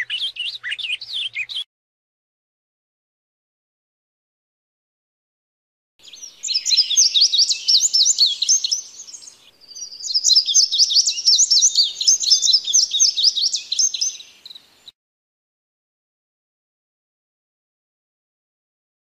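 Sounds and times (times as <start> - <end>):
sparrows chirping: 0.0 - 1.7, 6.0 - 14.9.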